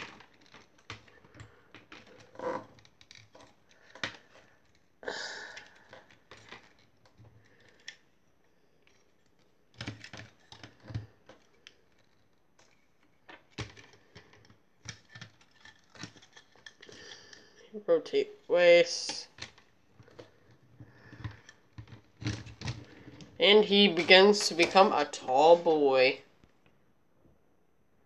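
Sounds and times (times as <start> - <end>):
plastic toy joints clicking: 0.0 - 4.9, 8.8 - 17.4.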